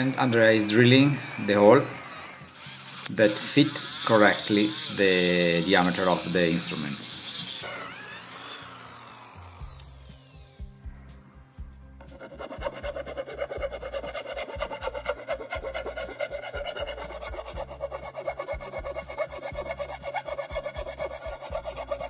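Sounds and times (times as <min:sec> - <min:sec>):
hand file rasping metal: 0:00.0 - 0:07.7, 0:12.0 - 0:22.0.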